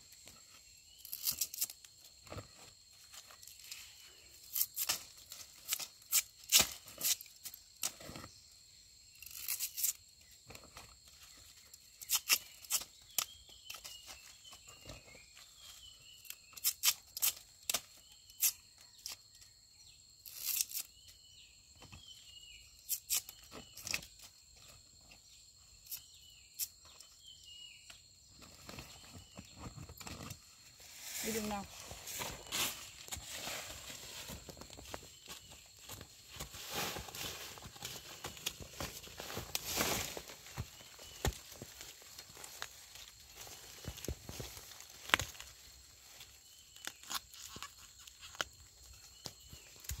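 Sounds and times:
bamboo sheaths tearing and snapping: 1.0 - 2.4, 4.4 - 8.3, 9.1 - 10.0, 11.9 - 14.2, 16.2 - 19.2, 20.2 - 21.1, 22.8 - 24.2, 36.7 - 50.0
rustling in dry leaves: 30.1 - 48.4.

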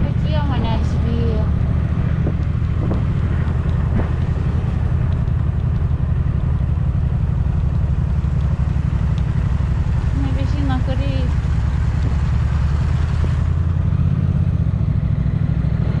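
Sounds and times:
wind rush: 0.0 - 7.6
engine drone: 0.0 - 16.0.

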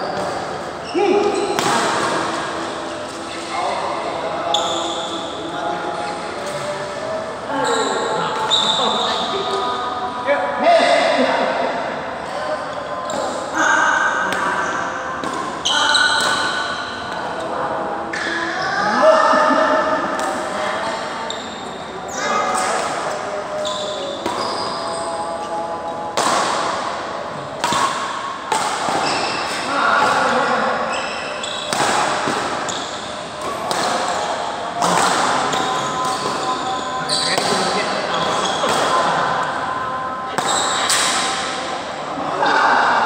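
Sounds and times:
shoes squeaking on court floor: 7.6 - 9.5, 23.6 - 25.4, 28.8 - 30.2, 30.9 - 34.4, 35.4 - 38.9
rackets hitting shuttlecock: 26.1 - 27.0, 27.6 - 30.4, 31.5 - 36.6.

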